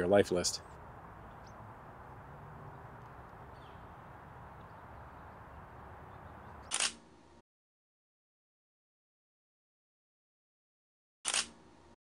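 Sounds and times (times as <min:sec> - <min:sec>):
faint outdoor background hiss: 0:00.0 - 0:07.4
camera shutter clicks: 0:06.6 - 0:07.0, 0:11.3 - 0:11.6.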